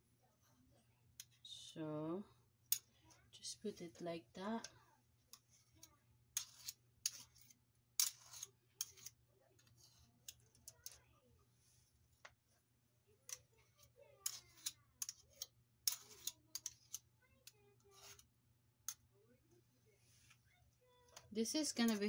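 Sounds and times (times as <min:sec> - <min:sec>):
spoon scraping glass bowl: 0:06.4 - 0:11.0, 0:13.7 - 0:17.0.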